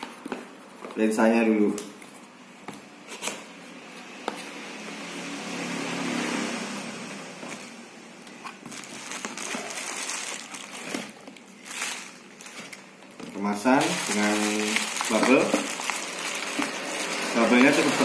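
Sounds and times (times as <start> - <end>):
bubble wrap crinkling: 8.3 - 18.0.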